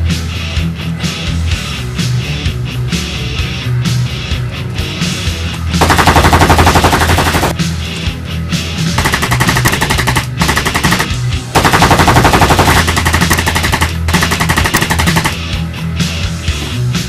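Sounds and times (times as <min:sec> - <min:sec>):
background music with low bass: 0:00.0 - 0:17.0
automatic gunfire bursts: 0:05.8 - 0:07.6, 0:09.0 - 0:15.4.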